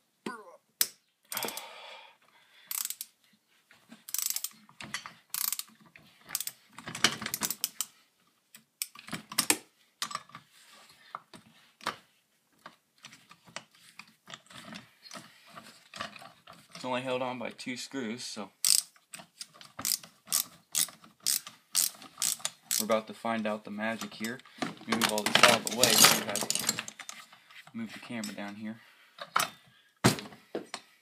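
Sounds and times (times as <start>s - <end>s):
screwdriver clicks and scrapes: 4.1s - 7.9s, 18.6s - 22.9s
loose metal parts rattling: 18.6s - 23.0s, 23.8s - 28.6s.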